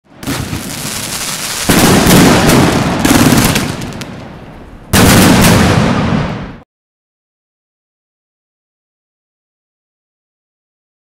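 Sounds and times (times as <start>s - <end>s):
fireworks shots and crackling bursts: 0.0s - 6.6s.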